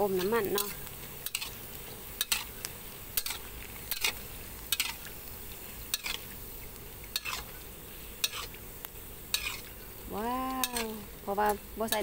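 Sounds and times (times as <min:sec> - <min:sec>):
low steady sizzle: 0:00.0 - 0:12.0
metal spatula scraping metal pan: 0:00.2 - 0:01.6, 0:03.2 - 0:05.0, 0:07.2 - 0:07.5, 0:08.2 - 0:08.5, 0:09.3 - 0:09.7, 0:10.6 - 0:11.1.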